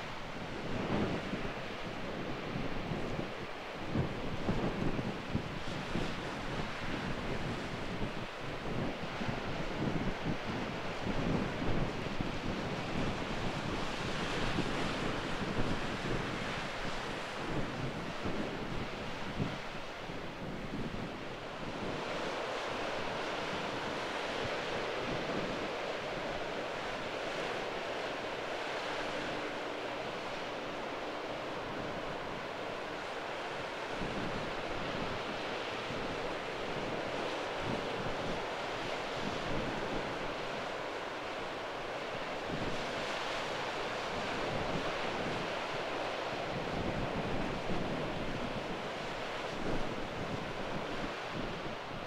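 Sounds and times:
wind buffeting microphone: 0:00.0 - 0:41.0, 0:41.9 - 0:52.0
waves breaking: 0:13.0 - 0:52.0.

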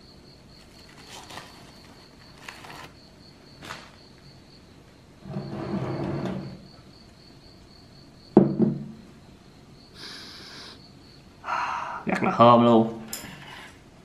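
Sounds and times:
clay pot lid knocking on table: 0:08.4 - 0:08.9
person sniffing: 0:10.0 - 0:10.8.

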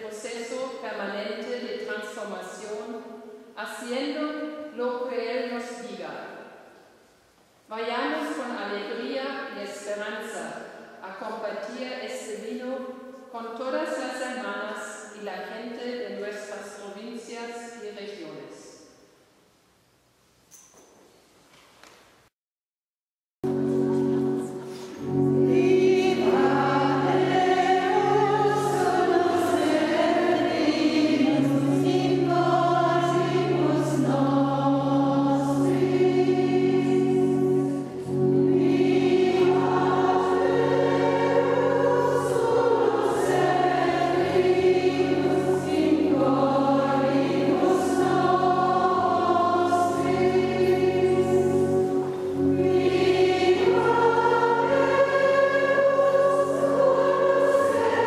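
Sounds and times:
choir singing a hymn: 0:23.5 - 0:58.0.

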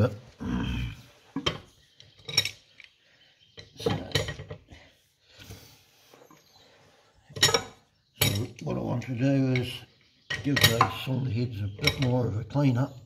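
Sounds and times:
metal clanks and knocks: 0:07.3 - 0:08.6, 0:09.5 - 0:11.1, 0:11.7 - 0:12.3.

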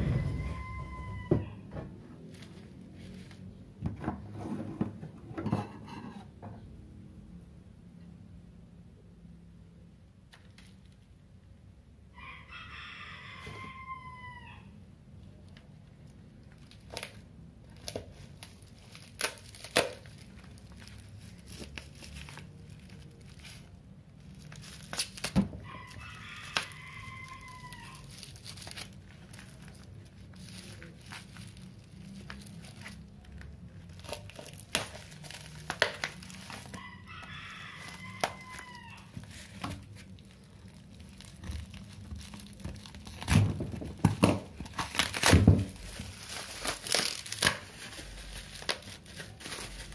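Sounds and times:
rooster crowing: 0:00.0 - 0:01.9, 0:12.1 - 0:14.8, 0:25.6 - 0:28.2, 0:36.5 - 0:39.6
bubble wrap crinkling: 0:02.2 - 0:03.8, 0:15.3 - 0:49.9.

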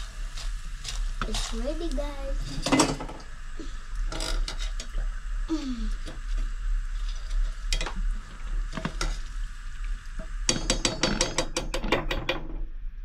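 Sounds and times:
potatoes deep-frying in oil: 0:00.0 - 0:12.6
utensil knocking in pan: 0:10.5 - 0:12.4.

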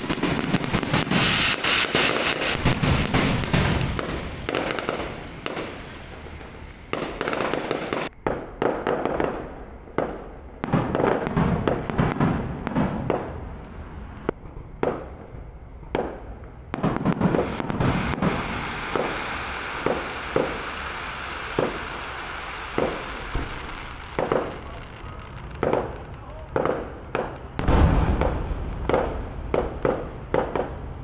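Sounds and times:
firework bangs: 0:00.0 - 0:31.0
firework crackling: 0:00.0 - 0:31.0.

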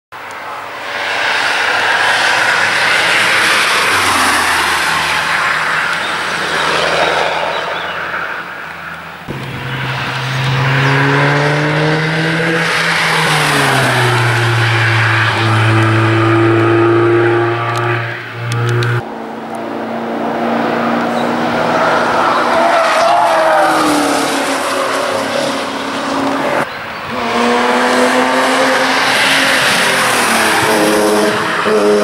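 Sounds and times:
race cars passing: 0:00.2 - 0:32.0
sports car engine pulling under load: 0:01.3 - 0:23.3.

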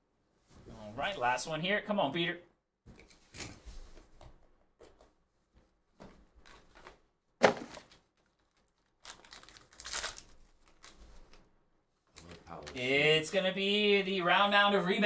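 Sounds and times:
plastic crinkling: 0:07.4 - 0:11.5.

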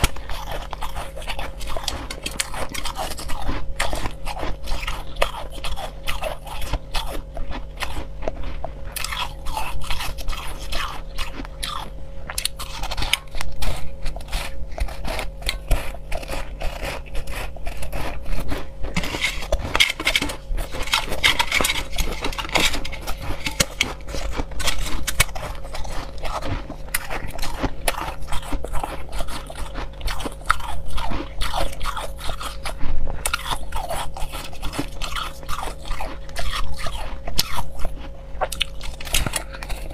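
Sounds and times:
fingers scraping ice in metal bowl: 0:00.0 - 0:07.2, 0:09.0 - 0:32.7
crushed ice crunching: 0:07.8 - 0:38.0.

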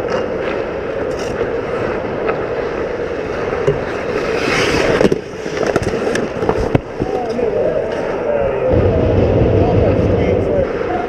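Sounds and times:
hockey sticks and puck clacking: 0:03.7 - 0:07.2
skate blades scraping ice: 0:03.8 - 0:07.0.

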